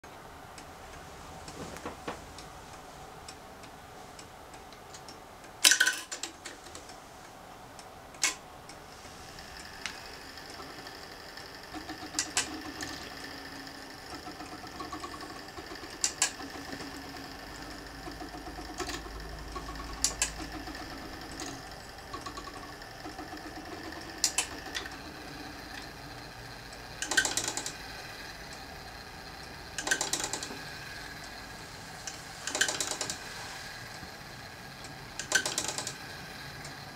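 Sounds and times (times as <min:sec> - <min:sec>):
rapid whirring of clock train: 0:07.2 - 0:36.9
clock mechanism ticking: 0:09.6 - 0:36.9.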